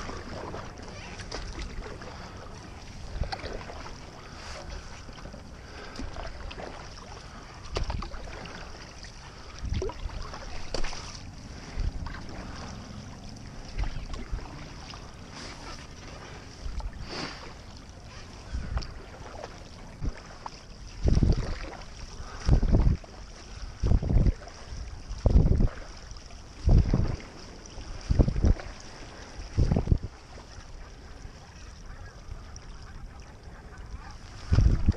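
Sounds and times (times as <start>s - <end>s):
paddle strokes splashing water: 0.0s - 34.9s
hiss of moving water: 14.6s - 17.8s
low rumbling on microphone: 21.0s - 25.8s, 26.6s - 30.2s, 32.8s - 34.9s.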